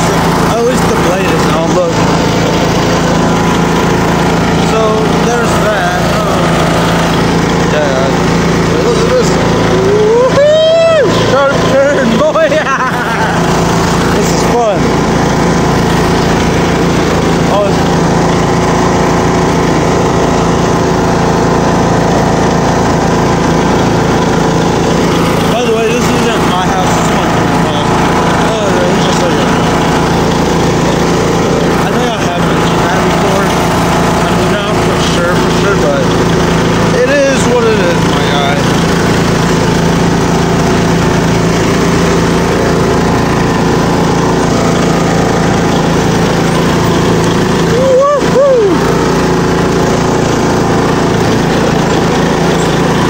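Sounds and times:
riding lawn mower engine running: 0.0s - 53.0s.

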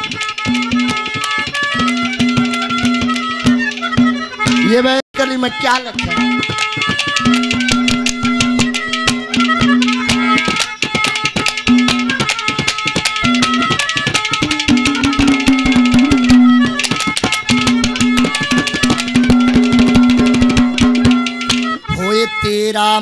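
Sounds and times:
fast hand-drum beat: 0.0s - 22.1s
held melody line: 0.0s - 23.0s.

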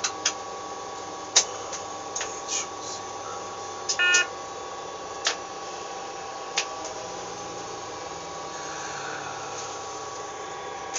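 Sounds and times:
railcar running noise: 0.0s - 10.9s
two-note hum: 4.0s - 4.3s.

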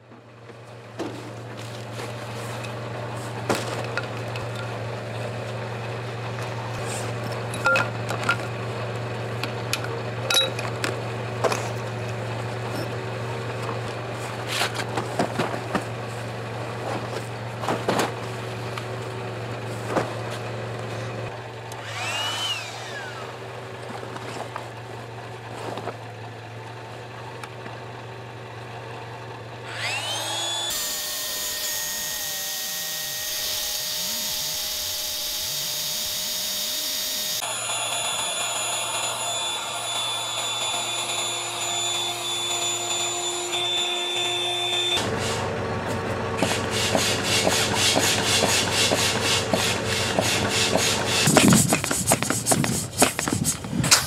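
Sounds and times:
electric air pump whining: 21.7s - 23.6s, 29.6s - 54.0s.

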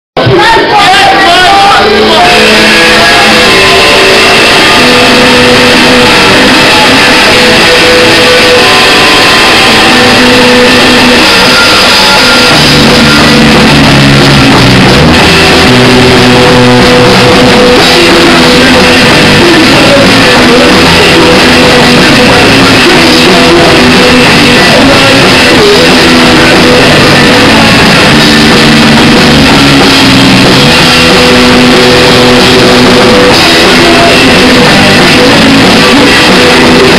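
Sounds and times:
drum kit: 0.2s - 36.9s
electric guitars: 0.2s - 36.9s.

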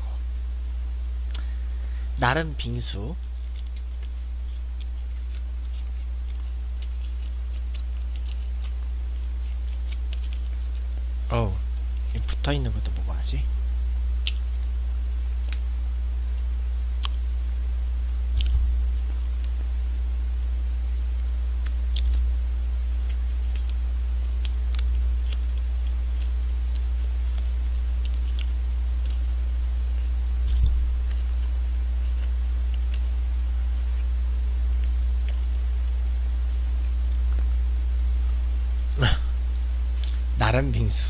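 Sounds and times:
steady low hum: 0.0s - 41.0s
wrapper crinkling being peeled: 3.2s - 11.0s.

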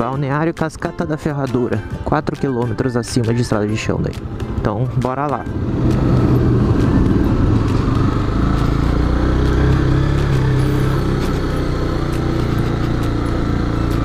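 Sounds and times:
motorcycle engine running: 3.4s - 14.0s.

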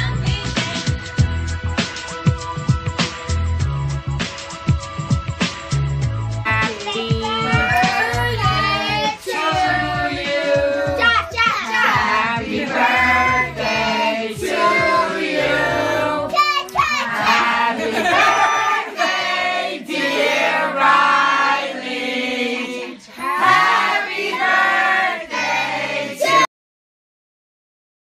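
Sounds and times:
backing track with bass line: 0.0s - 16.3s.

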